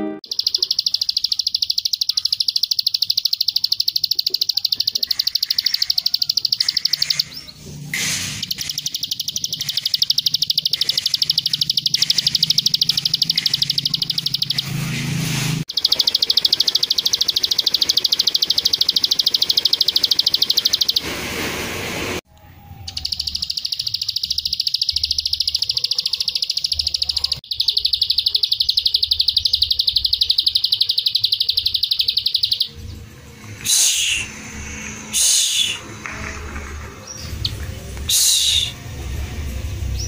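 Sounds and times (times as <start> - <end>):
small bird singing high notes: 8.4 - 14.8, 22.7 - 32.8.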